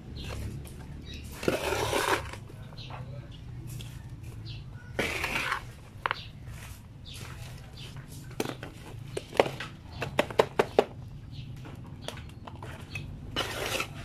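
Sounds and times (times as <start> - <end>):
plastic pots clicking and tapping: 0.0 - 3.2, 5.0 - 6.4, 7.2 - 14.0
soil being tipped and firmed: 1.2 - 2.5.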